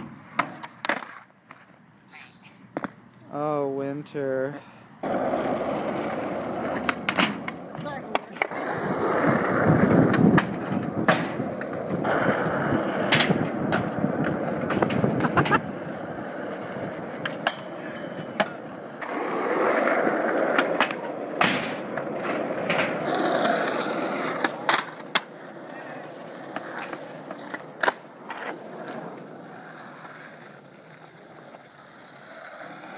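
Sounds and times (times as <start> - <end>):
skateboard clacking on ground: 0.0 - 1.8, 5.0 - 32.9
skateboard wheels rolling on concrete: 0.0 - 32.9.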